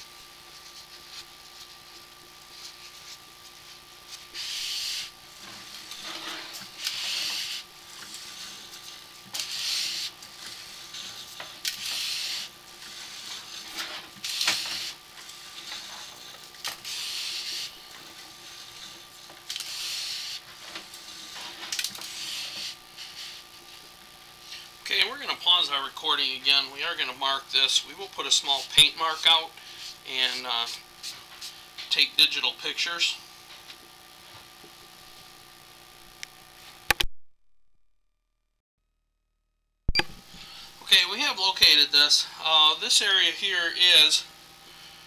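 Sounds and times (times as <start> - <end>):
cable scraping hiss: 2.6 - 25.7
sharp clicks: 36.2 - 37.1.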